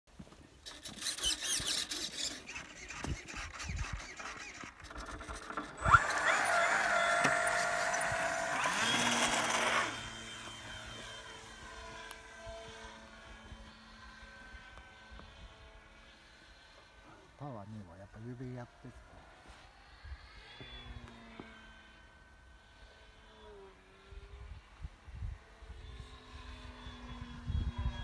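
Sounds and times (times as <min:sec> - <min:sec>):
model plane motor whine: 0:00.5 - 0:28.0.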